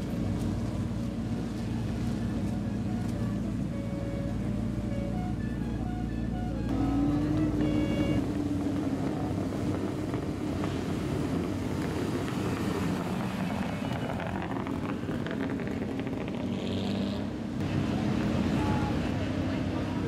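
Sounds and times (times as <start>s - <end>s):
car engine rumbling past: 0.0s - 20.0s.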